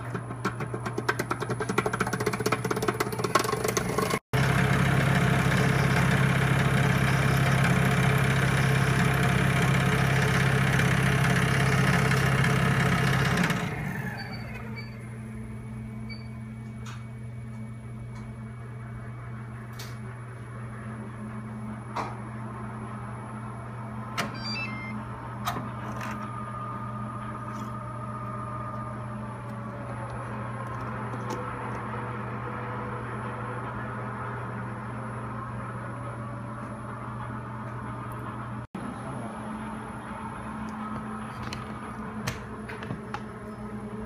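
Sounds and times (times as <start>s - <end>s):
short high beeps: 24.4s - 25.0s.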